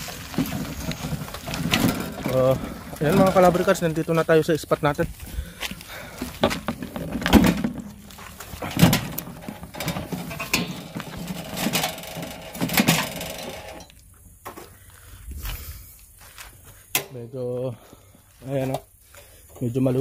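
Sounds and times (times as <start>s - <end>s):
gear knocking and clattering: 0.0s - 4.0s, 6.3s - 13.8s.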